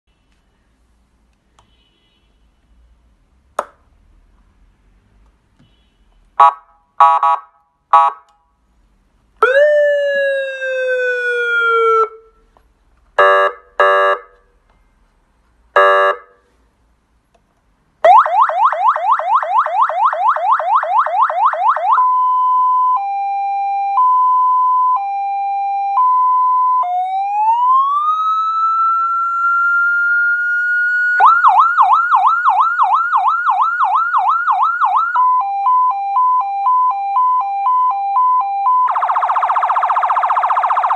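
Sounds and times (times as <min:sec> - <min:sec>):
electronic siren tones: 0:18.1 - 0:40.9.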